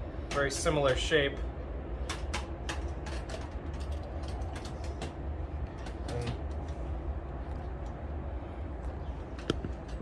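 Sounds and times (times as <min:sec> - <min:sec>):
steady low rumble: 0:00.0 - 0:10.0.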